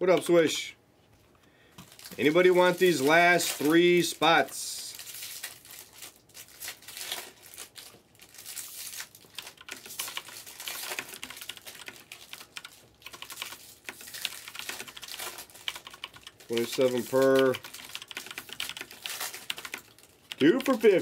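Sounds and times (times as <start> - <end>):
crinkling and rustling: 1.1 - 18.0, 18.8 - 21.0
keyboard typing: 9.3 - 21.0.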